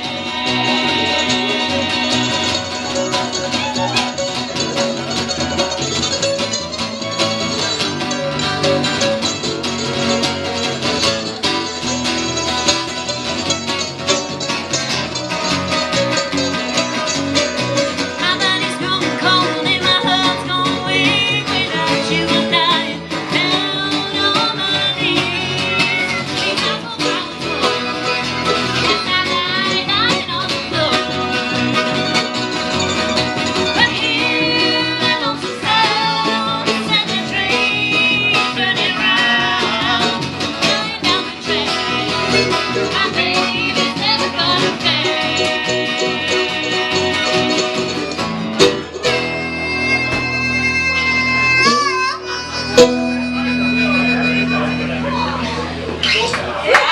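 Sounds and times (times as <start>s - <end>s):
woman singing: 0.0s - 4.2s, 18.0s - 32.8s, 33.4s - 48.0s
harmonica melody: 0.0s - 56.3s
acoustic guitars strumming: 0.0s - 56.8s
mandolin picking: 0.0s - 56.9s.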